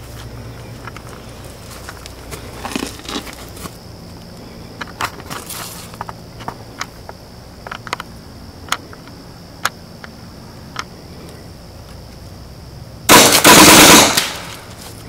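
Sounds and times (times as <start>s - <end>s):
steady high whine: 0.0s - 15.0s
machine gun burst: 13.1s - 14.6s.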